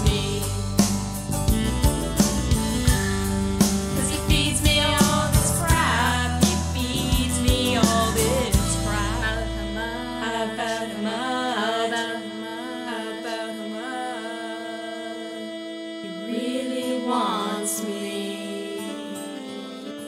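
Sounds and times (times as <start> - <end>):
long held low note: 0.0 - 19.8
voices singing wavering notes: 0.0 - 20.0.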